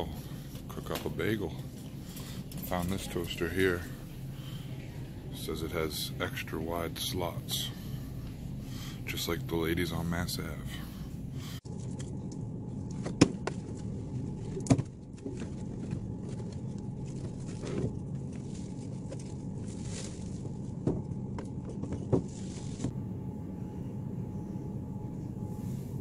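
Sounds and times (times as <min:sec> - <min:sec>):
store background hum: 0:00.0 - 0:26.0.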